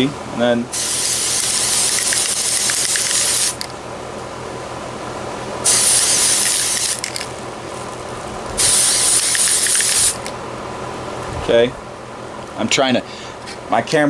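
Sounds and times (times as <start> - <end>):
aerosol can spraying hiss: 0.8 - 3.7, 5.7 - 7.1, 8.6 - 10.3.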